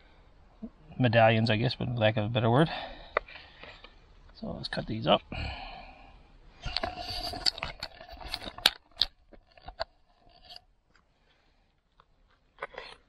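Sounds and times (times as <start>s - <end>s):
camera handling rustling: 6.7s - 11.1s.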